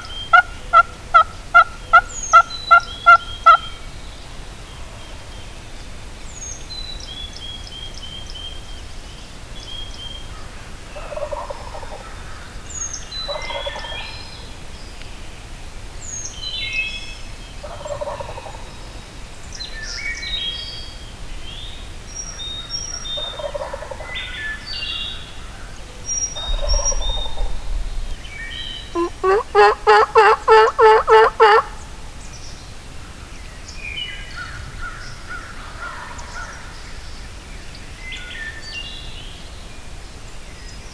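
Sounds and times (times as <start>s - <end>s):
turkey calls: 0.0s - 3.8s, 11.0s - 12.4s, 13.3s - 14.2s, 17.6s - 18.6s, 23.0s - 24.1s, 26.3s - 32.0s, 35.3s - 36.6s
songbirds singing: 0.0s - 40.9s.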